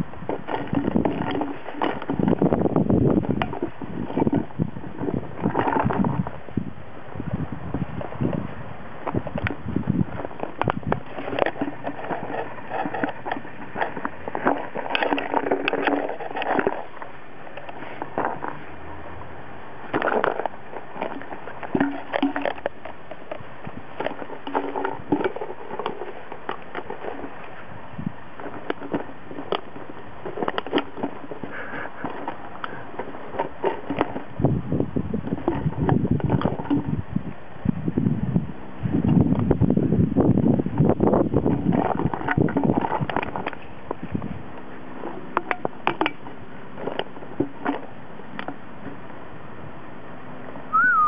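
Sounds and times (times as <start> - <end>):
low rumbling on microphone: 0.0 - 51.0
plastic bottle crinkling: 0.2 - 6.4, 7.9 - 18.8, 19.8 - 34.4.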